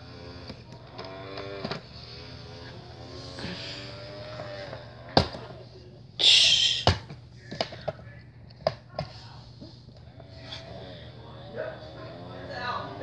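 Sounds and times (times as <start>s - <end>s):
faint drawn-out hum: 0.0s - 13.0s.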